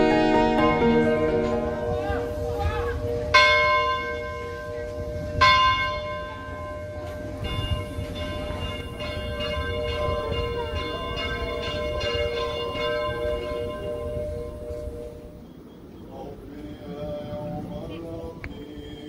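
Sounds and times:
church bells ringing: 0.0s - 15.9s.

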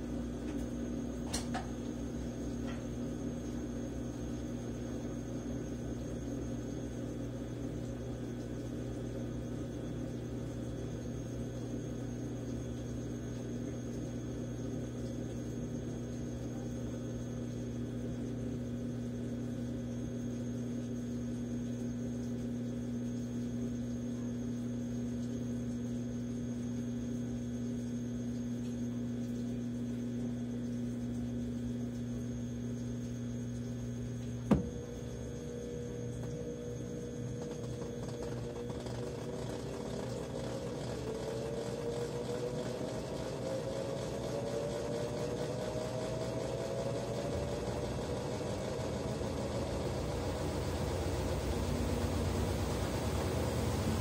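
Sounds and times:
washing machine humming: 0.0s - 54.0s.

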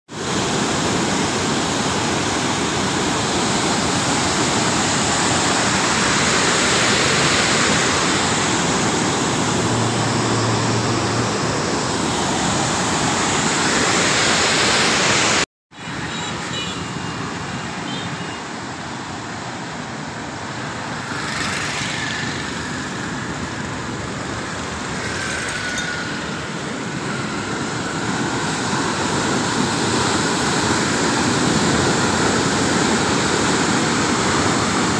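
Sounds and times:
water rushing through sluice gates: 0.2s - 15.4s, 18.6s - 34.9s.

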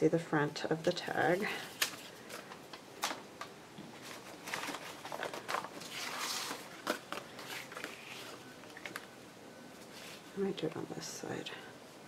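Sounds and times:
paper rustling: 1.6s - 3.2s, 3.9s - 9.1s.

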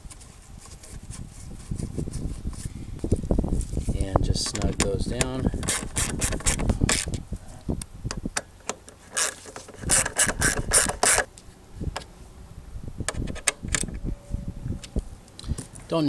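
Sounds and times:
socket ratchet clicking: 8.4s - 11.3s.

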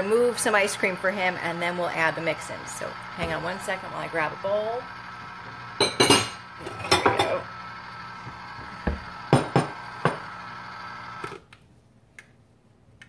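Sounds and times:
ice cream maker humming: 0.0s - 11.5s
dishes clinking: 5.8s - 7.4s.

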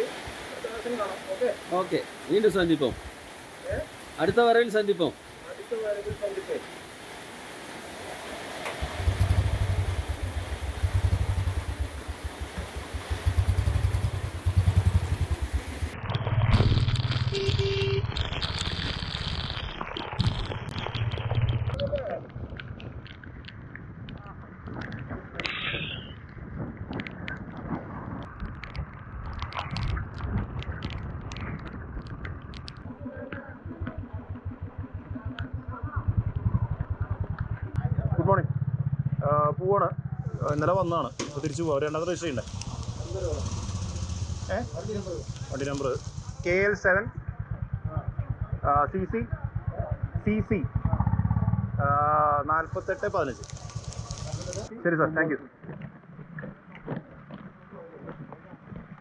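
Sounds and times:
motorcycle engine idling: 8.8s - 16.0s, 33.2s - 54.7s
sharp clicks and clatter: 13.5s - 25.6s, 26.2s - 37.9s, 40.4s - 48.5s, 52.6s - 54.7s.

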